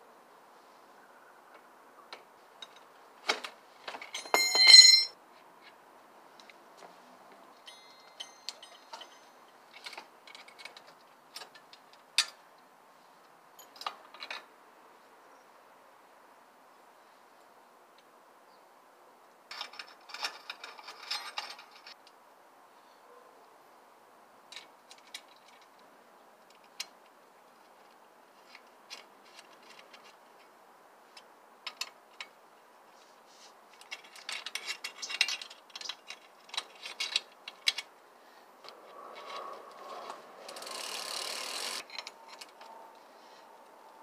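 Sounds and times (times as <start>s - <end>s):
bicycle whirring: 38.8s - 41.9s
bicycle drivetrain ratcheting clicks: 40.4s - 41.9s.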